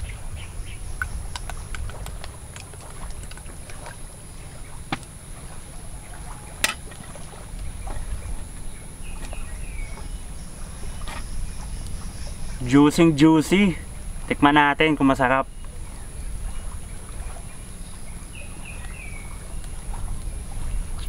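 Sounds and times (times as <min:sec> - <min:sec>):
wind on microphone: 0:00.0 - 0:21.0
clicks and smacks of eating: 0:01.0 - 0:04.0.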